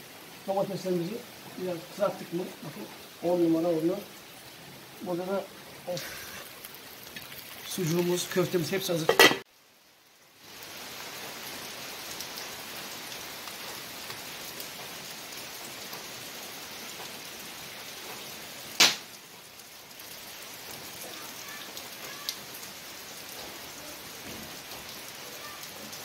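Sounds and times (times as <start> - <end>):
rain falling: 0.0 - 26.0
sharp knock: 18.8 - 19.0.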